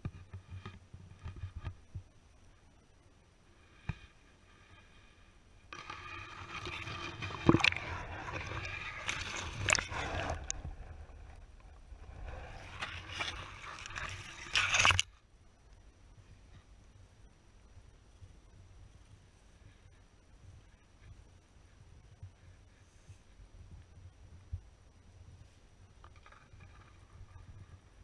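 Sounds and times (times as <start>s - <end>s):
grass scraping against camera: 3.7s - 15.1s
water sloshing: 5.8s - 15.1s.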